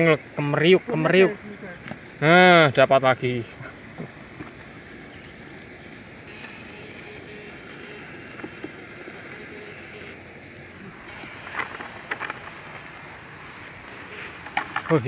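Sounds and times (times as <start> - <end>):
water flowing in a channel: 0.0 - 6.3, 10.2 - 15.0
grass rustling: 0.9 - 15.0.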